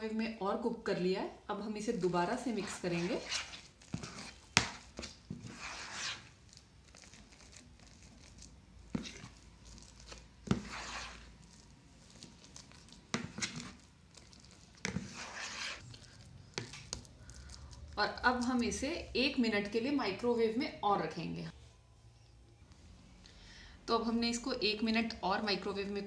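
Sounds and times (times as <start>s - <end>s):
spoon stirring thick mixture: 2.0s - 19.8s.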